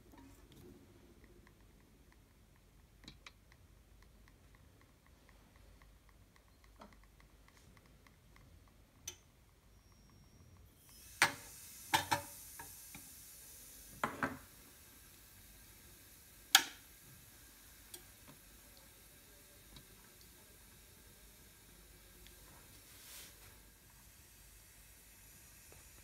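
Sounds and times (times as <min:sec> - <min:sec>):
faint steady hiss: 0:00.0 - 0:26.0.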